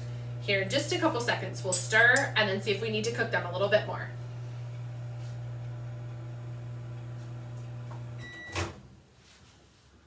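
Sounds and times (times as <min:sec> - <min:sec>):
microwave oven humming: 0:00.0 - 0:08.8
microwave beep: 0:07.8 - 0:08.8.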